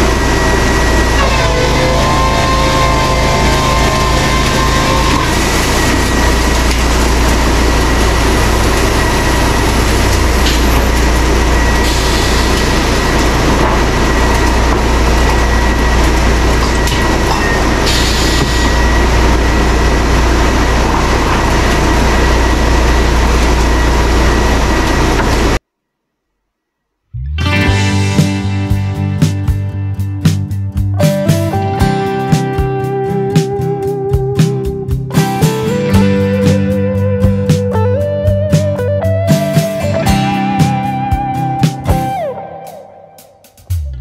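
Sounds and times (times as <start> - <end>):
sawmill machinery whining: 0.0 - 25.6.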